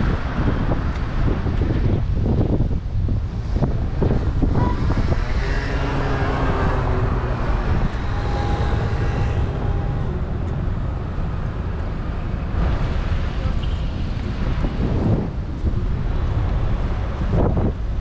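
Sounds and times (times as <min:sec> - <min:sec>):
steady low traffic rumble: 0:00.0 - 0:18.0
vehicle passing: 0:03.3 - 0:17.2.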